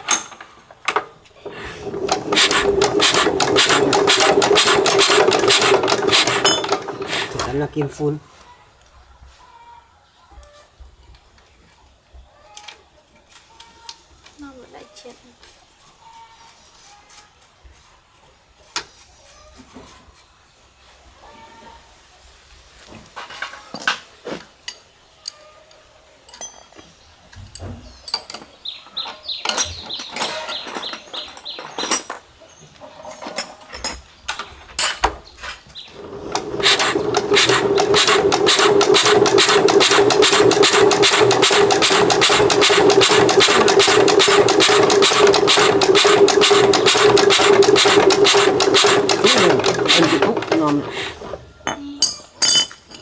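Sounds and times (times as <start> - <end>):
clicks and knocks of work: 0.0 - 8.0, 36.0 - 51.1
small diesel engine running: 1.4 - 7.7, 36.0 - 51.1.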